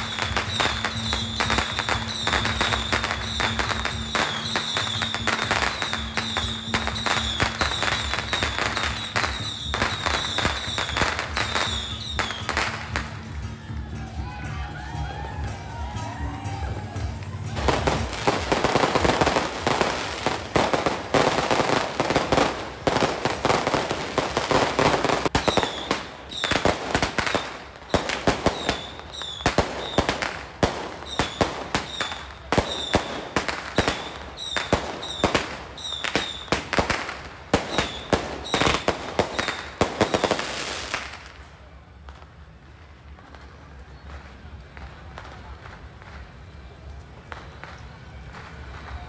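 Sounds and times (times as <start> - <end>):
firework whistles: 0.0 - 13.0, 17.6 - 41.4
firework bangs: 0.0 - 13.3, 17.5 - 49.0
firecrackers crackling: 0.0 - 49.0.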